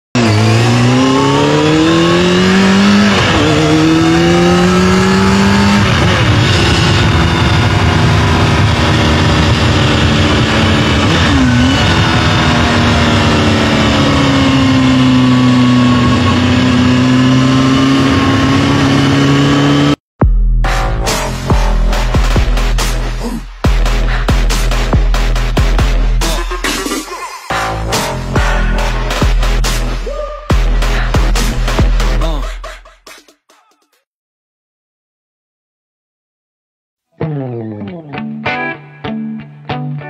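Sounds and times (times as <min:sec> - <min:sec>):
motorcycle engine accelerating: 0:00.2 - 0:26.4, 0:27.5 - 0:30.0.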